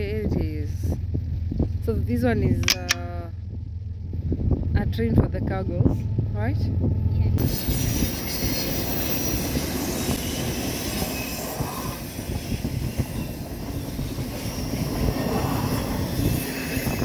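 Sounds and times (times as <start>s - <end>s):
freight train rolling past: 5.9s - 17.0s.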